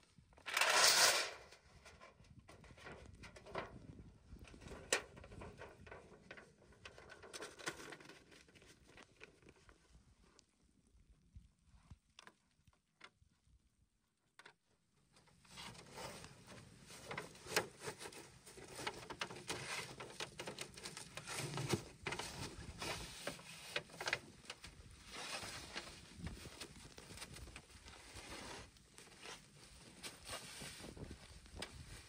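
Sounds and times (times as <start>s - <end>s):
wooden pole scraping through snow: 0.5s - 1.5s, 28.0s - 31.6s.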